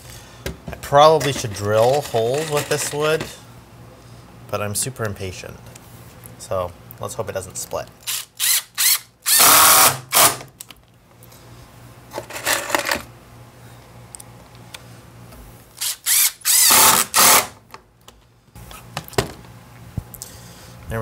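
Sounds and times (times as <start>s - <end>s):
impact driver driving screws: 8.1s - 10.5s, 15.8s - 17.6s.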